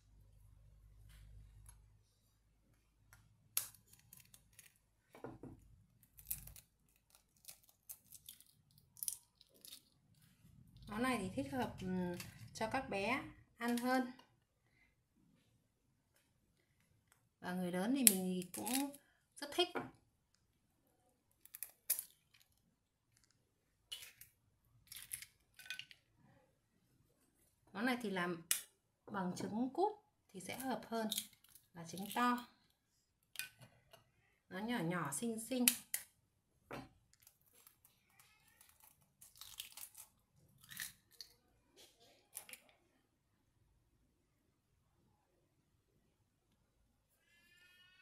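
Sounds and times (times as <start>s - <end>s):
eggshell cracking: 5.9s - 10.1s, 21.4s - 26.0s, 38.5s - 41.3s.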